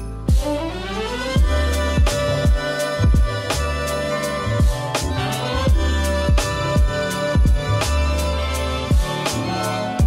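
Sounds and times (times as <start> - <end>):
crisp high percussion: 0.0 - 10.0
booming kick drum: 0.3 - 0.5, 1.4 - 3.5, 4.6 - 4.9, 5.7 - 7.8, 8.9 - 9.2.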